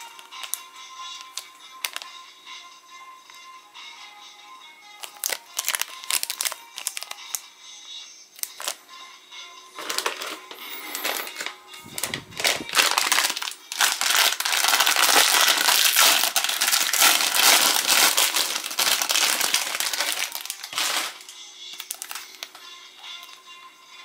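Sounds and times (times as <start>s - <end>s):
plastic wrapper crinkling: 0.0s - 0.6s, 1.2s - 2.1s, 5.0s - 7.4s, 8.4s - 8.8s, 9.8s - 22.6s.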